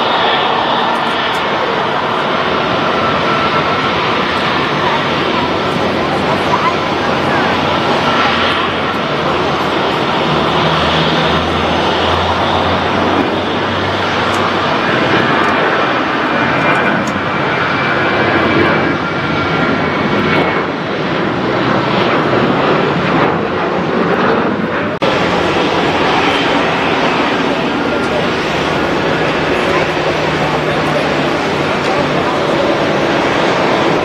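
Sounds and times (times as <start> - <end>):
jet engines roaring: 0.0 - 34.0.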